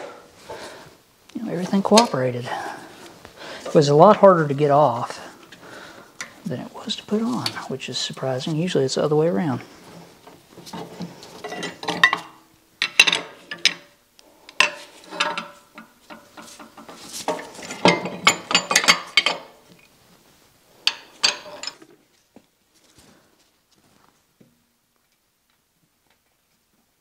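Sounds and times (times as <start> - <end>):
metal tools clinking and clanking: 10.7 - 13.9, 14.6 - 19.6, 20.9 - 22.0.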